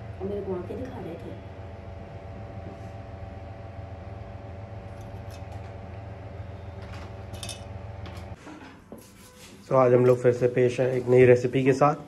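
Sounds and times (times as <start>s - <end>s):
motor hum: 0.0s - 8.4s.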